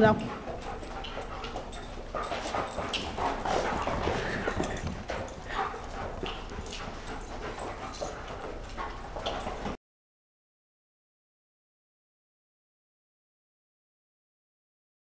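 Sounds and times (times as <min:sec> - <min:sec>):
dogs scuffling: 0:00.0 - 0:09.8.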